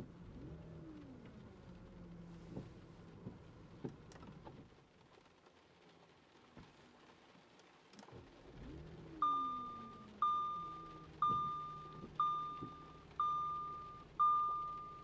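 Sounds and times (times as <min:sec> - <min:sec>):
car engine starting and idling: 0:07.9 - 0:15.0
dashboard warning chime: 0:09.2 - 0:15.0.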